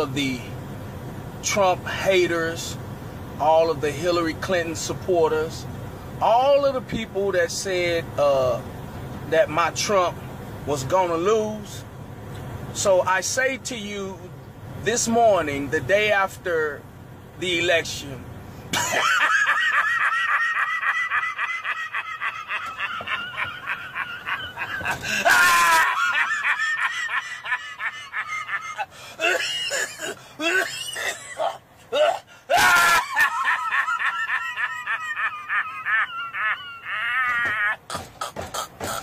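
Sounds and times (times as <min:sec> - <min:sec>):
man laughing hysterically: 0:18.7 - 0:39.0
man gasping in-breaths: 0:28.9 - 0:29.2.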